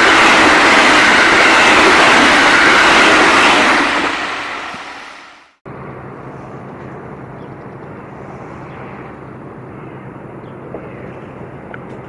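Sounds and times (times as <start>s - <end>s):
low outdoor rumble: 5.7s - 12.0s.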